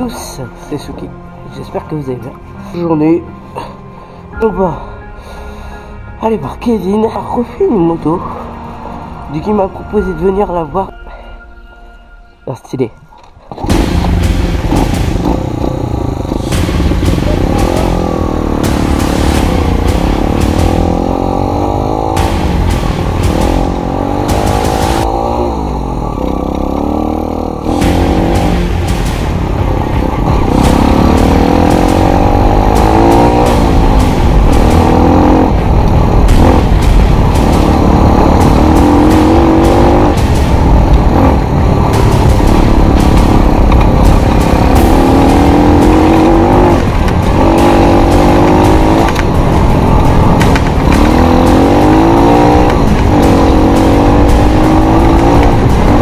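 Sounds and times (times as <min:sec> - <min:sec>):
dirt bike engine revving: 0:13.6 - 0:56.0.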